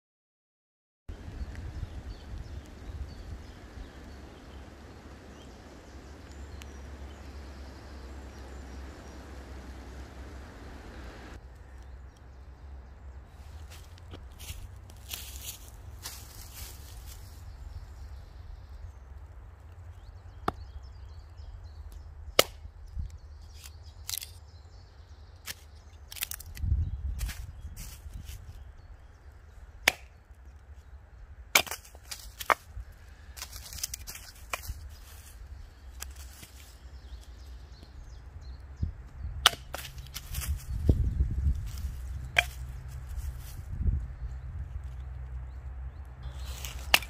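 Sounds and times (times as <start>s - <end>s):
low rumble: 1.1s - 22.2s
steady low rumble: 1.1s - 25.9s, 26.5s - 47.0s
wood cracking and snapping: 21.9s - 24.4s, 25.4s - 27.5s, 29.8s - 30.6s, 31.5s - 32.7s, 33.4s - 34.8s.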